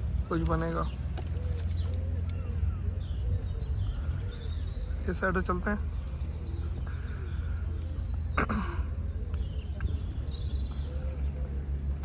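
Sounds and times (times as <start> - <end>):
faint bird calls: 0.0 - 12.0
wind rumble on microphone: 1.7 - 4.9, 9.0 - 12.0.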